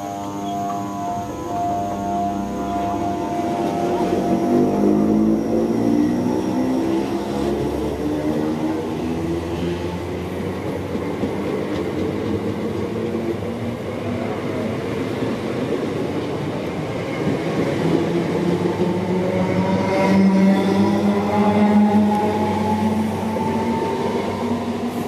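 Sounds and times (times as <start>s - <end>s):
train whine rising in pitch: 0.0s - 10.7s, 17.1s - 25.0s
train wheels rumbling on rails: 2.4s - 25.0s.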